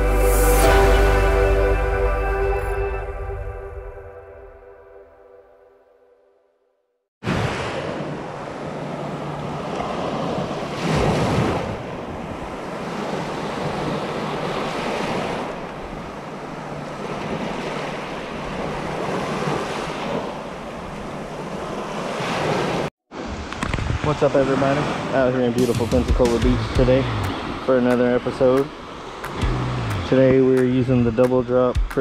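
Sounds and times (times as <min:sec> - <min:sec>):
small surf washing over sand: 0:07.2 - 0:26.4.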